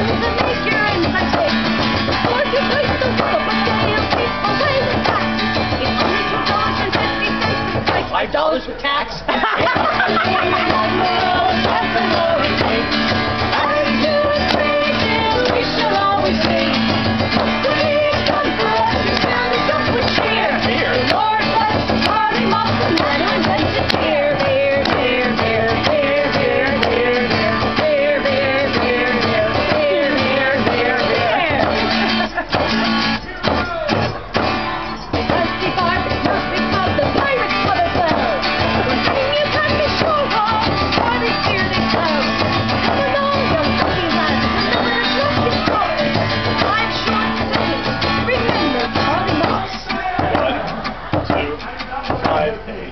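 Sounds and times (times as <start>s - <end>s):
voices singing together: 0.0s - 8.2s, 9.3s - 52.9s
frame drum beat: 0.0s - 8.3s, 9.4s - 52.7s
acoustic guitar strumming: 0.0s - 52.9s.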